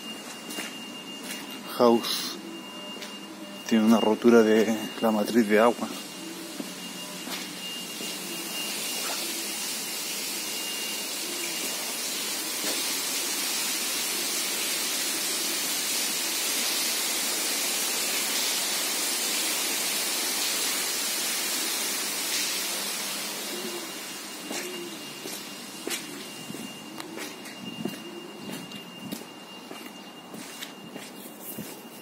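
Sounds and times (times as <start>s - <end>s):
water gushing and spraying: 5.9s - 26.7s.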